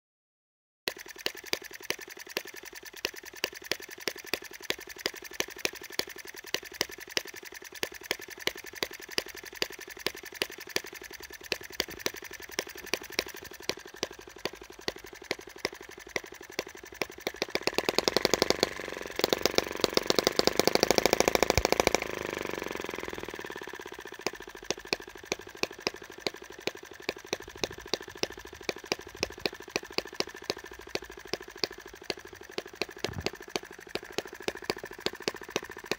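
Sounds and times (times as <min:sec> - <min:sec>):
small petrol engine popping: 0:00.9 - 0:35.9.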